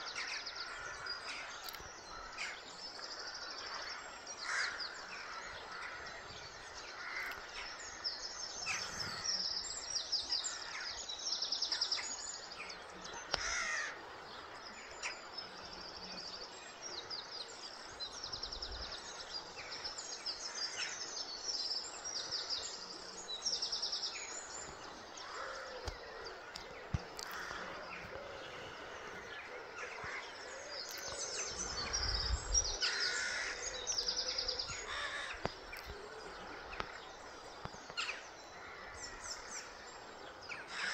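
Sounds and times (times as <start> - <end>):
birds singing with trills: 0.0 - 40.9.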